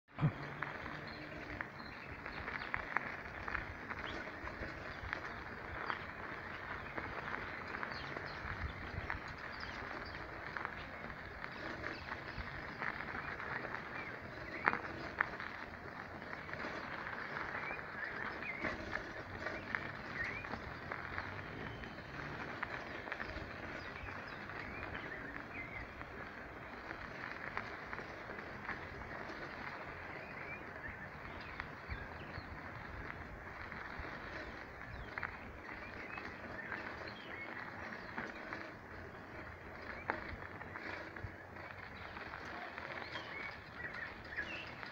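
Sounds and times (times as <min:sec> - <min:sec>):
crunching footsteps on gravel: 0:00.1 - 0:44.9
steady outdoor hiss: 0:00.1 - 0:44.9
bird chirps: 0:34.0 - 0:44.9.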